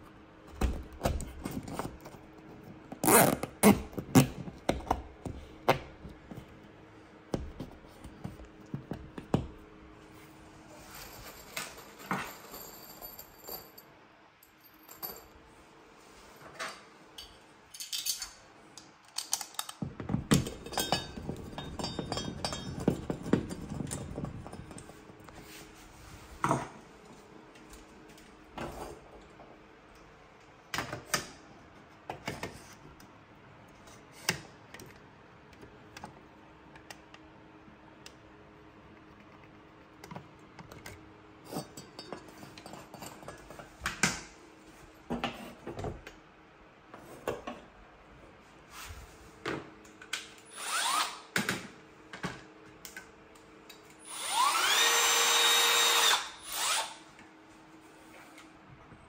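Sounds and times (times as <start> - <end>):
small parts and tools clattering: 10.8 - 15.4, 16.4 - 25.4, 40.1 - 43.8.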